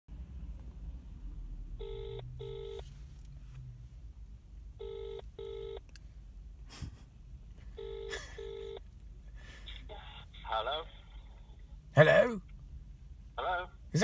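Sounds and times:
telephone ringback tone: 0:01.8 - 0:02.8, 0:04.8 - 0:05.8, 0:07.8 - 0:08.8.

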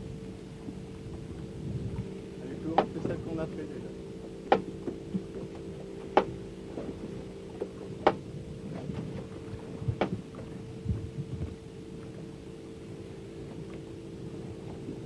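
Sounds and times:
boat engine humming: 0:00.0 - 0:15.0
sharp knocks: 0:04.5 - 0:05.0.

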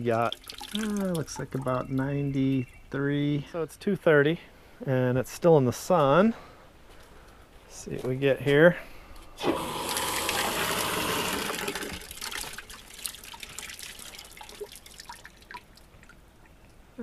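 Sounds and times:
water gushing from valve: 0:00.0 - 0:01.8, 0:09.4 - 0:15.8
water dripping: 0:00.0 - 0:03.1, 0:09.6 - 0:17.0.

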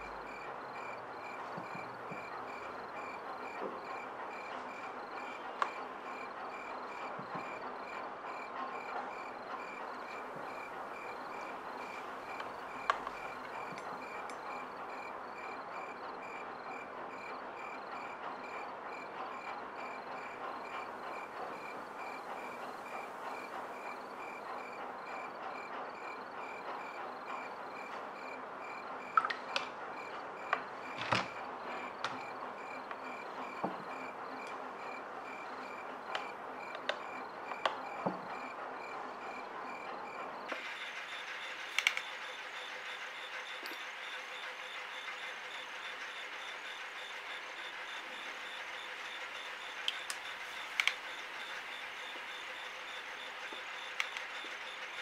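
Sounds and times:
crickets chirping: 0:00.0 - 0:55.0.

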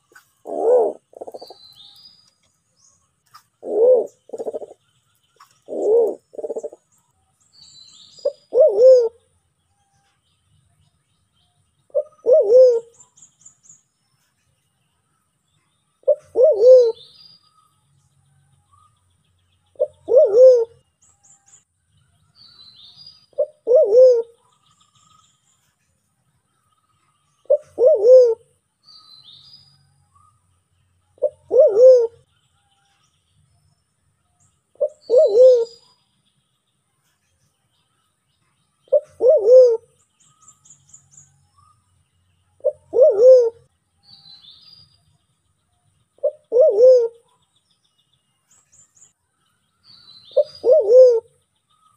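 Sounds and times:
pigeon cooing: 0:00.4 - 0:01.6, 0:03.6 - 0:04.8, 0:05.7 - 0:06.8, 0:08.2 - 0:09.2, 0:11.9 - 0:13.0, 0:16.1 - 0:17.0, 0:19.8 - 0:20.8, 0:23.4 - 0:24.4, 0:27.5 - 0:28.5, 0:31.2 - 0:32.2, 0:34.8 - 0:35.8, 0:38.9 - 0:39.9, 0:42.6 - 0:43.7, 0:46.2 - 0:47.2, 0:50.4 - 0:51.3.

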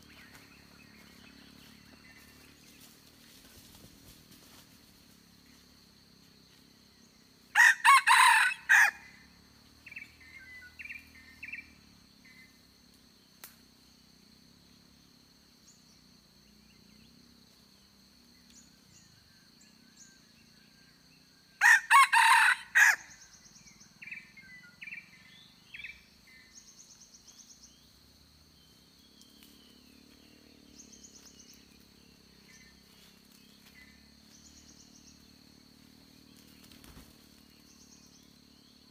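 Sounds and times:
rooster crowing: 0:07.5 - 0:09.1, 0:21.6 - 0:23.2.

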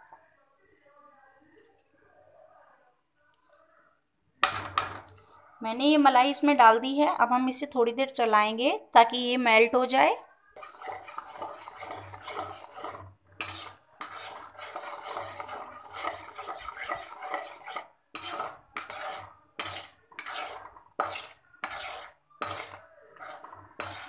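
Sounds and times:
spoon scraping a pan: 0:04.4 - 0:05.3, 0:10.6 - 0:24.0.

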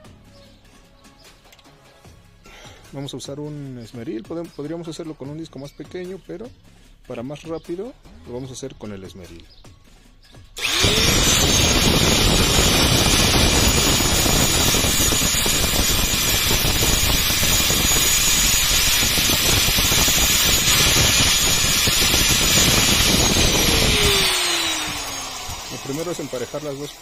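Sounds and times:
angle grinder whining: 0:10.6 - 0:27.0
steel grinding on abrasive disc: 0:10.6 - 0:27.0.

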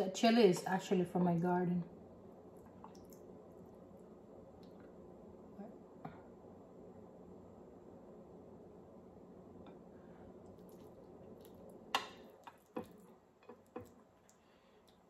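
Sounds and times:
wet eating clicks and smacks: 0:02.5 - 0:04.0, 0:10.4 - 0:15.0.

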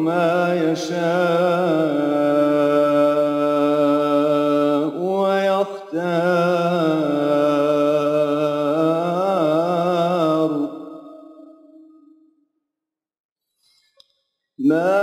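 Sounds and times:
man chanting melodically: 0:00.0 - 0:11.0, 0:14.6 - 0:15.0.

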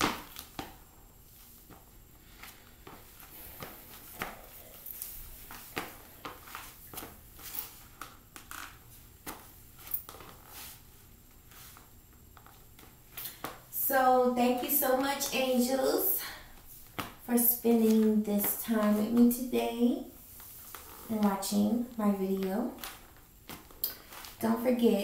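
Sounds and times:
footsteps on tile floor: 0:00.0 - 0:10.8.

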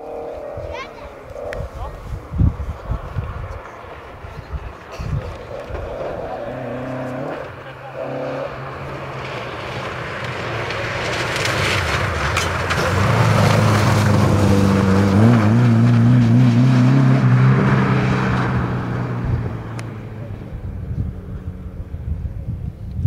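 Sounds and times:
rally car driving past: 0:01.4 - 0:22.2.

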